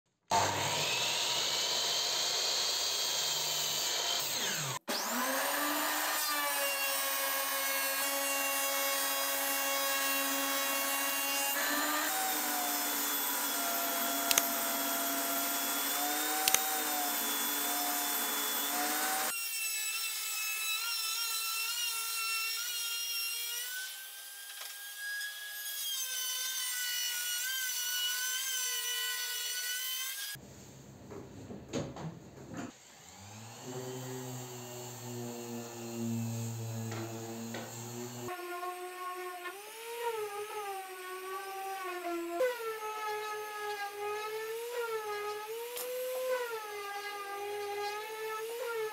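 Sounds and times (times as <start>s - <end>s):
table saw cutting: 0.3s - 30.4s, 32.7s - 48.9s
router wavering whine: 11.5s - 19.3s, 33.0s - 38.8s
sharp clicks: 14.3s - 14.5s.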